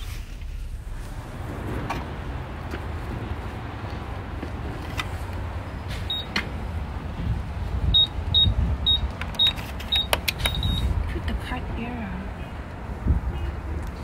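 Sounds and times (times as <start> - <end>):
keypad beeps: 6.1 - 6.3, 8.0 - 10.9.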